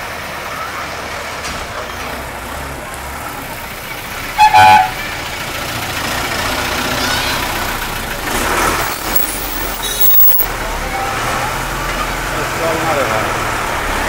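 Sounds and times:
bus engine passing: 0:00.0 - 0:14.0
road noise: 0:00.0 - 0:14.0.

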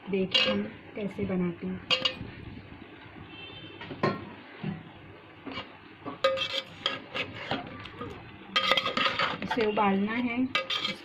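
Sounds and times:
metal spoon scraping steel pot: 0:00.2 - 0:00.7, 0:05.5 - 0:11.0.

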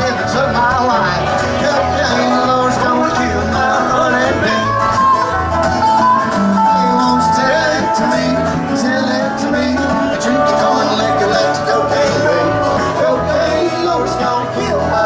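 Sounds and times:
band playing country music: 0:00.0 - 0:15.0.

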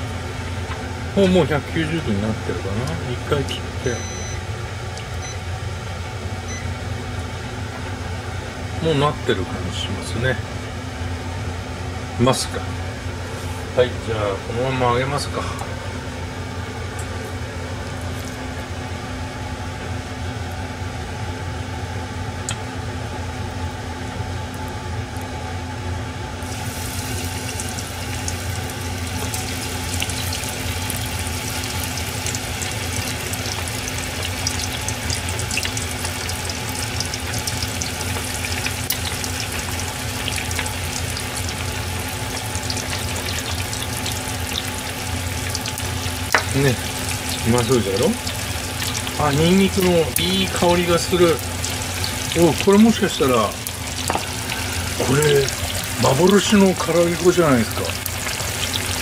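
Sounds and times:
steady low hum: 0:00.0 - 0:59.0
chicken sizzling in hot oil: 0:03.0 - 0:08.2, 0:26.3 - 0:59.0.

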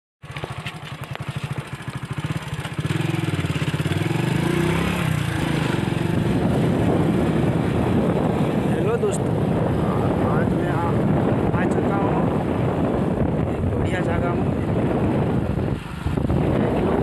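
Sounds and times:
small engine running: 0:00.2 - 0:06.4.

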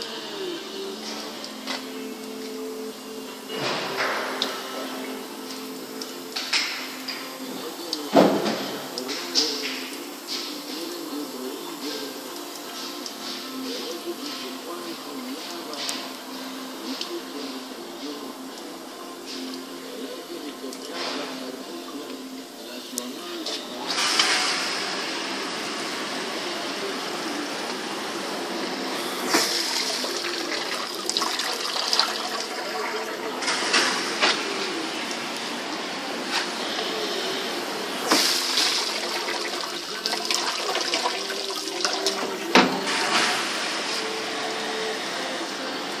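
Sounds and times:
dishwasher water spraying: 0:23.4 - 0:46.0.

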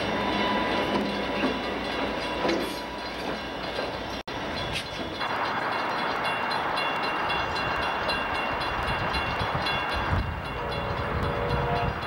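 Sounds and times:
distant locomotive air horn: 0:10.4 - 0:12.0.

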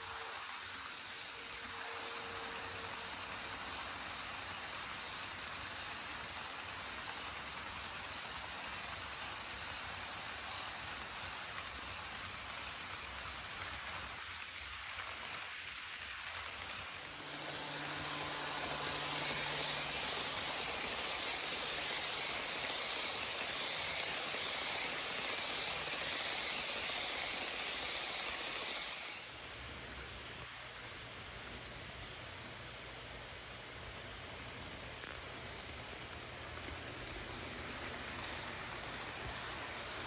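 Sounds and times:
model train wheels rattling on rails: 0:00.0 - 0:30.0, 0:32.2 - 0:40.0
faint motor hum: 0:00.0 - 0:40.0.

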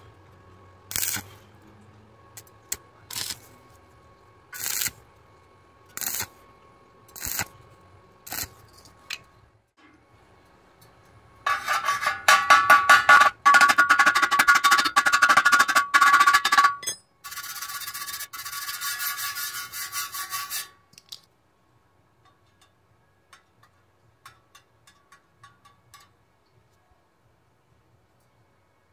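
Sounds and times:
welding arc crackling: 0:00.9 - 0:01.3, 0:02.4 - 0:03.5, 0:04.5 - 0:05.0, 0:05.9 - 0:06.4, 0:07.1 - 0:07.6, 0:08.2 - 0:08.6
wire brush scraping metal: 0:00.9 - 0:01.4, 0:04.6 - 0:05.0, 0:06.0 - 0:06.3, 0:07.1 - 0:07.6, 0:11.5 - 0:16.6, 0:17.2 - 0:20.8.

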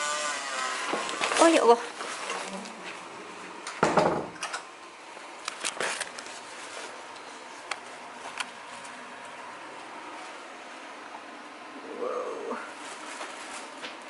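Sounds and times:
door thudding shut: 0:03.8 - 0:04.4.

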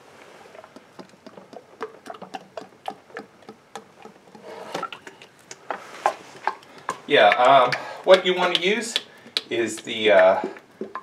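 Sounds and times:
fluid glugging from bottle: 0:00.0 - 0:08.4.

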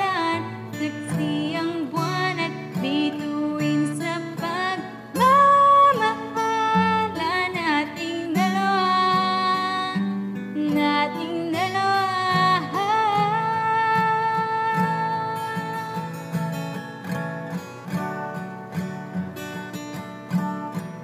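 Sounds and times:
woman singing: 0:00.0 - 0:16.4
acoustic guitar: 0:00.0 - 0:21.0.

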